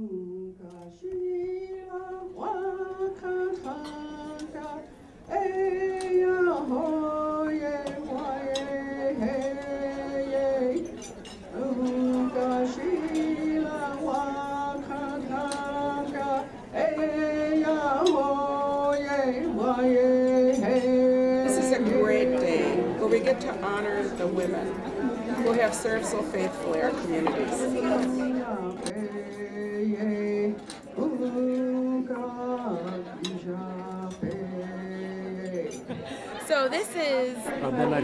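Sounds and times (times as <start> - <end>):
woman singing slow melody: 11.6 - 24.8.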